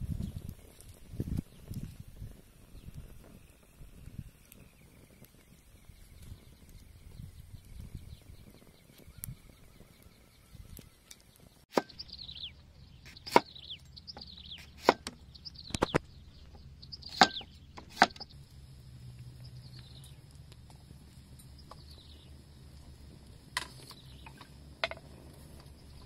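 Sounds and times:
knife chopping on wooden board: 13.1 - 13.5, 14.6 - 15.2.

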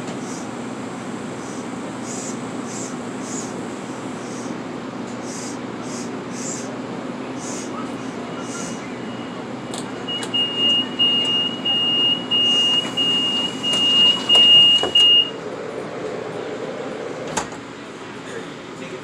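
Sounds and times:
high electronic beep: 10.1 - 15.3.

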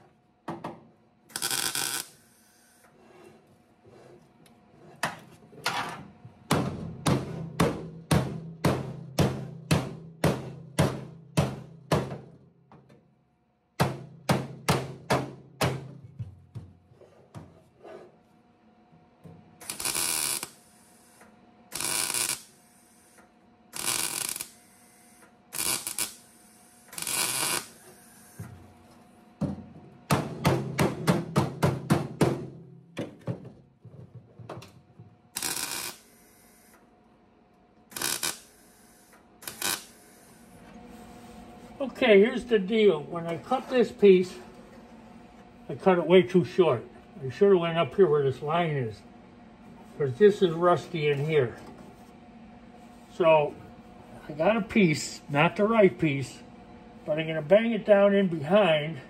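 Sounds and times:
welding tacks crackling: 1.3 - 2.2, 19.6 - 20.6, 21.7 - 22.6, 23.8 - 24.7, 25.6 - 26.3, 26.9 - 27.8, 35.4 - 36.1, 37.9 - 38.7, 39.4 - 40.1
welder hum: 1.3 - 3.0, 19.5 - 29.2, 35.3 - 36.9, 37.8 - 44.3.

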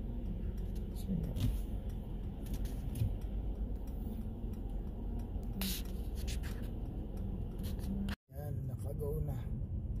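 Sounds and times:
car cabin rumble while driving: 0.0 - 10.0
light scraping: 5.6 - 8.2.

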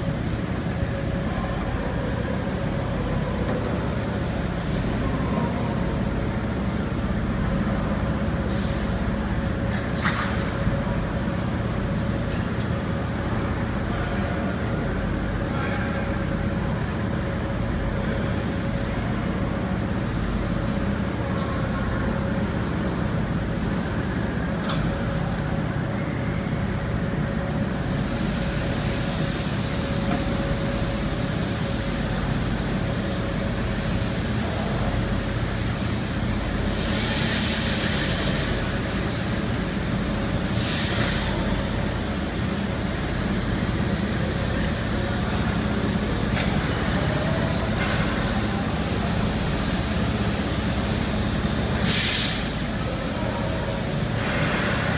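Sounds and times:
compressed air hiss: 36.7 - 38.7, 40.5 - 41.4, 51.8 - 52.6.

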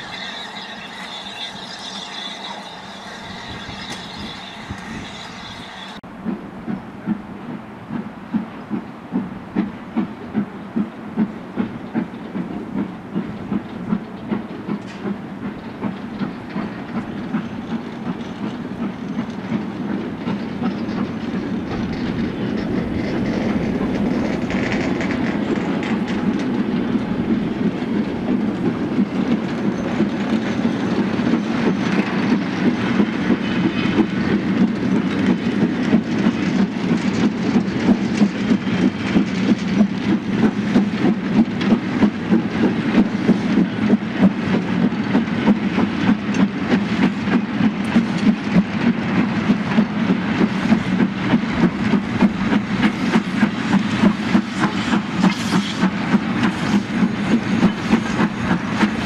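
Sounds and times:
high squeal: 0.0 - 6.0
freight train rumble: 0.0 - 59.0
train wheels clicking over rail joints: 0.0 - 59.0.

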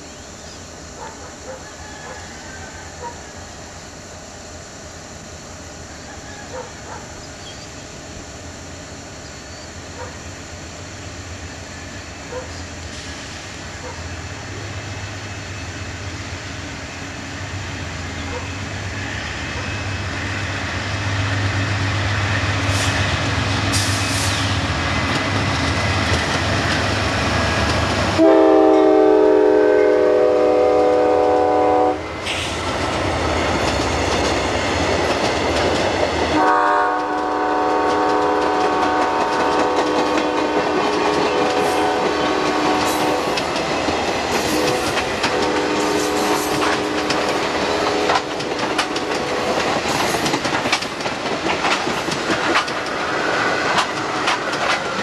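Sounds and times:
train cars clattering over rails: 22.2 - 28.2, 32.2 - 55.0
train air horn: 28.2 - 32.6, 36.3 - 43.4, 44.4 - 49.6.

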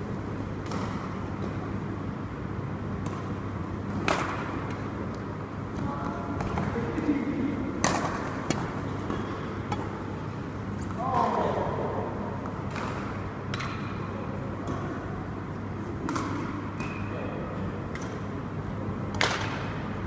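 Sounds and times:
low hum in hall: 0.0 - 20.0
rackets hitting shuttlecock: 0.6 - 1.6, 2.9 - 11.4, 12.4 - 15.2, 15.9 - 18.4, 19.1 - 19.8.

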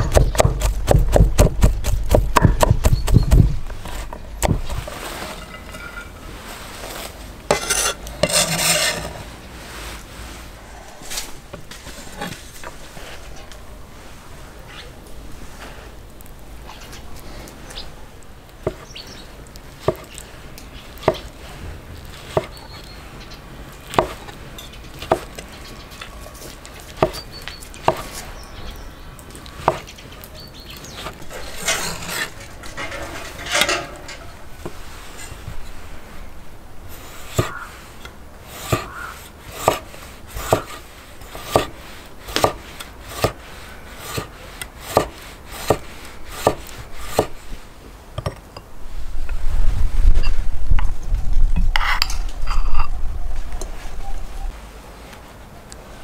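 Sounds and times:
knife chopping on wooden board: 0.0 - 3.6, 23.9 - 24.2, 27.0 - 27.2, 37.3 - 37.6, 38.6 - 39.8, 40.4 - 40.8, 41.5 - 41.7, 42.3 - 43.4, 44.1 - 47.3
knife slicing gherkins on wood: 0.0 - 4.9, 7.5 - 9.2, 23.8 - 24.3, 25.0 - 25.4, 26.8 - 28.2, 37.0 - 37.7, 38.5 - 43.4, 44.0 - 47.4
blade scraping across board: 0.4 - 9.3, 30.8 - 35.8, 36.9 - 47.4.

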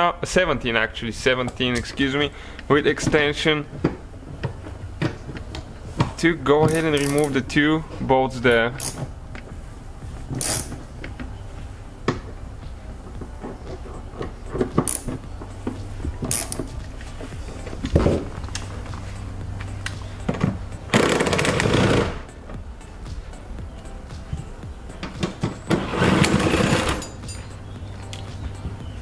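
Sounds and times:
metal tools rattling: 6.6 - 7.5, 25.0 - 28.3
socket wrench clicking and knocking: 14.2 - 15.2, 16.2 - 16.7.

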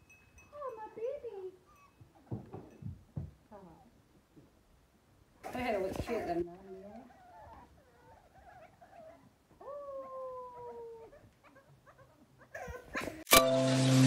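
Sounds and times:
puppies whimpering and whining: 6.8 - 9.3
sharp click: 13.3 - 13.5.

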